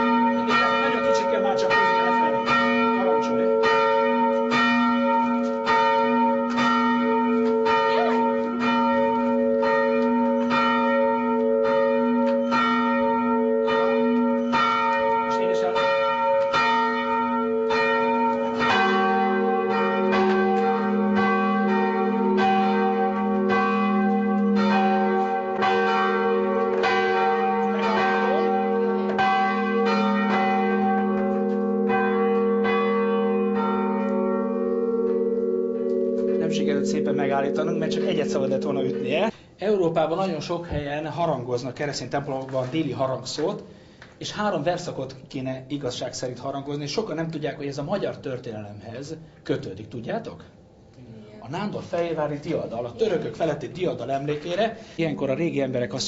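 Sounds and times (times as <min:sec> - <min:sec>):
church bell ringing: 0:00.0 - 0:39.4.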